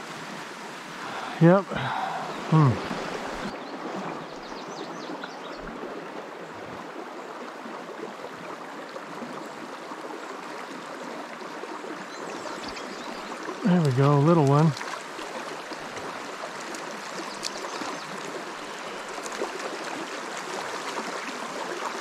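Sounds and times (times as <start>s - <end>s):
river rushing: 0.0s - 4.4s.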